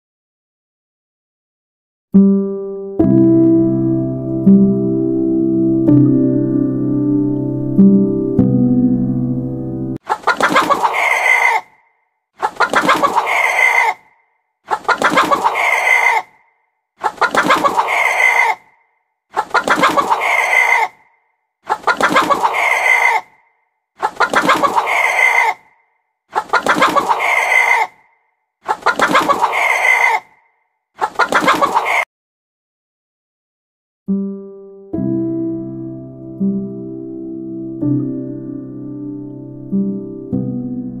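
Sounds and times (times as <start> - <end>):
chicken clucking: 10.0 - 11.8, 12.4 - 14.1, 14.7 - 16.4, 17.0 - 18.7, 19.4 - 21.0, 21.7 - 23.3, 24.0 - 25.7, 26.3 - 28.0, 28.7 - 30.4, 31.0 - 32.1.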